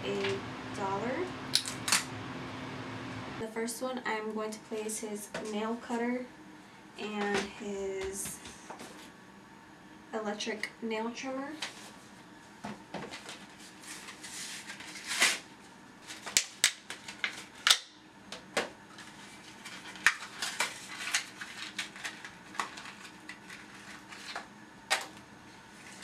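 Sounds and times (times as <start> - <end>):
packaging rustling: 13.1 - 15.4, 16.0 - 17.7, 18.9 - 24.5.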